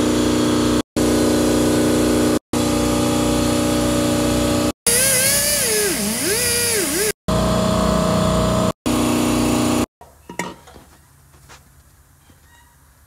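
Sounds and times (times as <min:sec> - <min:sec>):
die grinder whining: 0:04.9 - 0:07.4.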